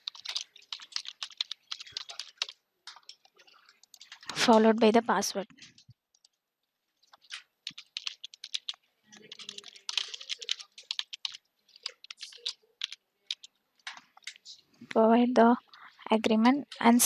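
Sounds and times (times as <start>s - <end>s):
keyboard typing clicks: 0.0s - 4.7s, 7.1s - 14.4s.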